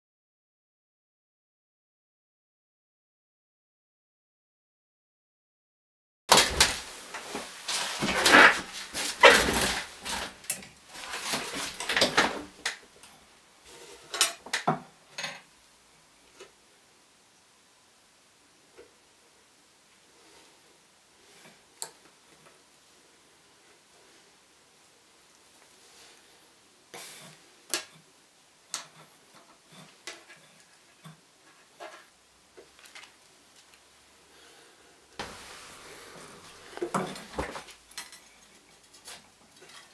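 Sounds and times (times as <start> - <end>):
handling rustle: 6.3 - 12.5
wire rustling: 6.3 - 15.3, 27.0 - 34.0, 35.2 - 39.9.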